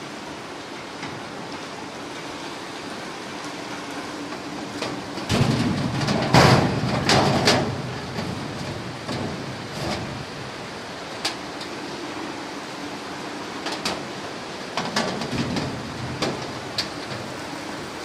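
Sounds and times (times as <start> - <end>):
metal panel scraping clatter: 4.8 - 10.2.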